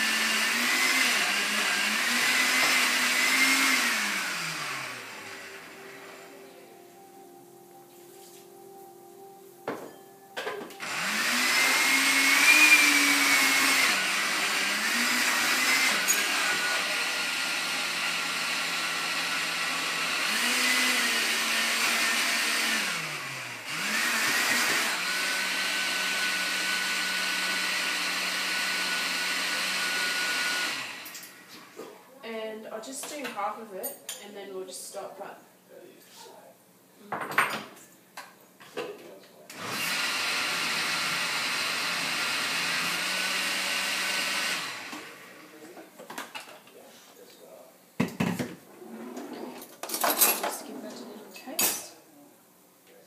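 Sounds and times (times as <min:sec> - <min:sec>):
blender motor running: 0:00.0 - 0:06.2, 0:10.8 - 0:31.5, 0:39.5 - 0:45.6.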